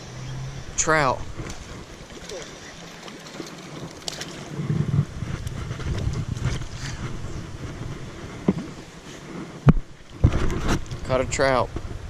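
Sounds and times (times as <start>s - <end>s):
creek water rushing: 0.0s - 10.3s
wind rumbling on microphone: 0.0s - 12.0s.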